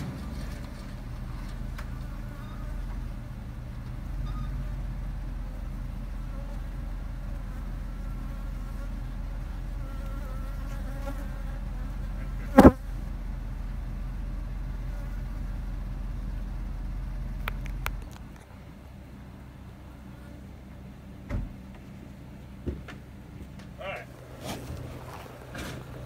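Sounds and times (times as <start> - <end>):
bees buzzing: 6.0 - 12.9.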